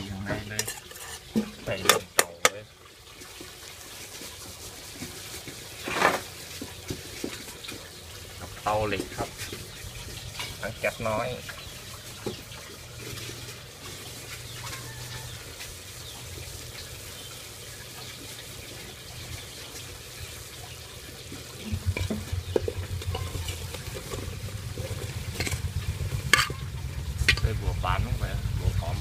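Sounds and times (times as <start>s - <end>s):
food sizzling in a pot: 0.0s - 28.5s
vegetables knocking into pot: 21.6s - 27.5s
low rumble: 21.6s - 29.0s.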